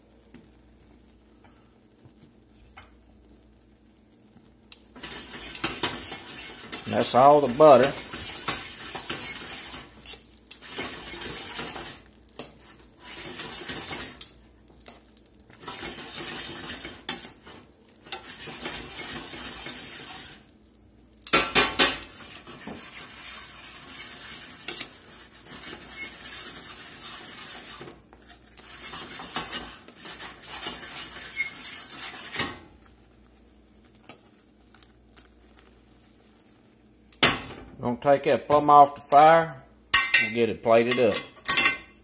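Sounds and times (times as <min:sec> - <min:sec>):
metal tongs clanking on skillet: 0:05.0 - 0:14.4, 0:21.2 - 0:23.0, 0:24.6 - 0:25.0, 0:39.9 - 0:42.0.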